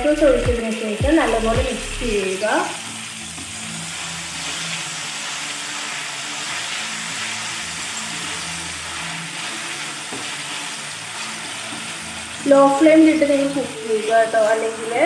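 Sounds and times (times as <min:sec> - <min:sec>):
food sizzling in frying pan: 0:00.0 - 0:15.0
wooden spatula stirring: 0:03.3 - 0:12.7.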